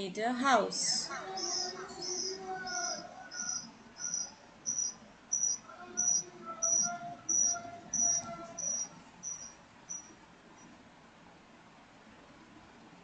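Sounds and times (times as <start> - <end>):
cricket chirping: 1.3 - 10.2.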